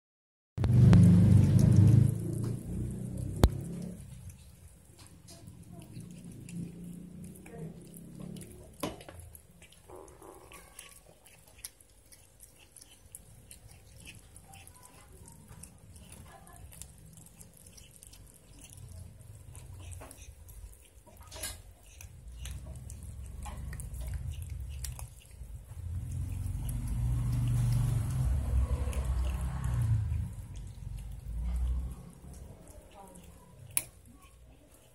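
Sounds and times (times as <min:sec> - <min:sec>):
low rumble: 0:00.6 - 0:04.4
kitten chewing meat: 0:00.6 - 0:34.9.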